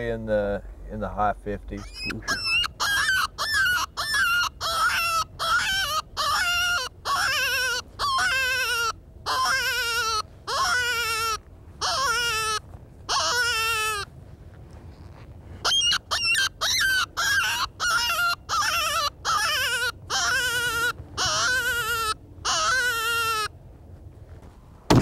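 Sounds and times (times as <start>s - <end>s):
predator call wailing cries: 1.8s - 14.1s, 15.6s - 23.5s
high squeals: 15.6s - 23.4s.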